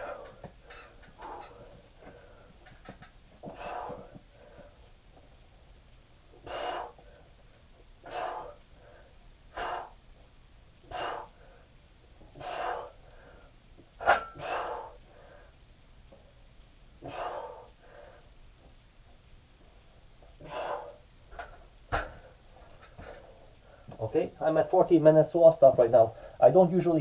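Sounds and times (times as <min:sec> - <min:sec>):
man breathing forcefully: 0:00.0 - 0:04.9, 0:06.3 - 0:10.2, 0:10.8 - 0:15.7, 0:17.0 - 0:18.4, 0:20.4 - 0:24.0.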